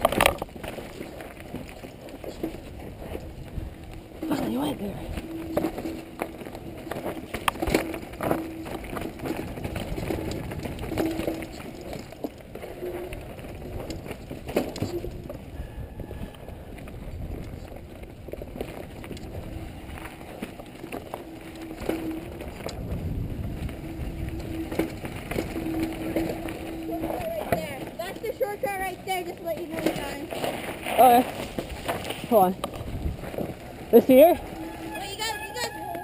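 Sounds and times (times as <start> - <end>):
bike knocking and rattling: 0.0 - 36.0
bike tyres rolling on dirt: 0.0 - 36.0
steady hum: 1.2 - 29.4.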